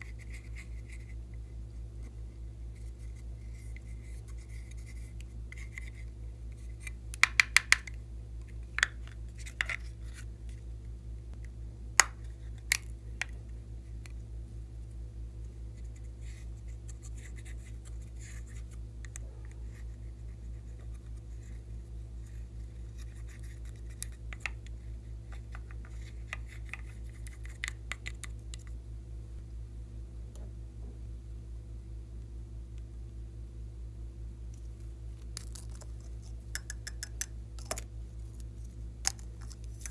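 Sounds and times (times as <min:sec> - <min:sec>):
steady low hum: 0:00.0 - 0:39.9
powder tapping on plastic palette: 0:07.2 - 0:08.0
faint scratching: 0:15.4 - 0:27.6.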